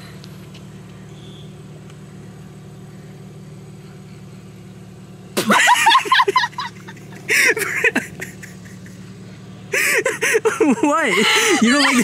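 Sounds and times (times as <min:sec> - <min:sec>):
vehicle engine idling: 0:00.0 - 0:12.0
woman laughing: 0:05.4 - 0:09.1, 0:09.7 - 0:12.0.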